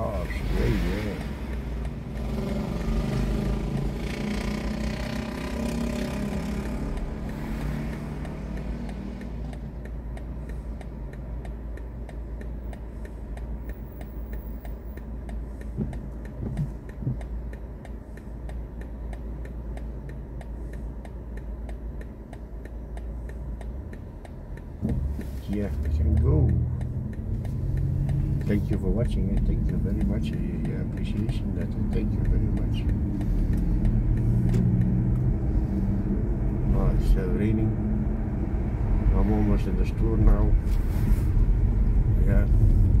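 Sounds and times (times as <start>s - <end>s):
turn signal ticking: 0.0s - 43.0s
lorry and motorcycle passing: 2.3s - 8.9s.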